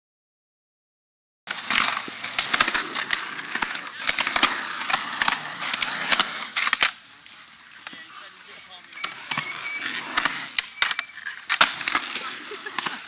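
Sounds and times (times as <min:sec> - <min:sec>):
skateboard wheels rolling on concrete: 0:01.5 - 0:13.0.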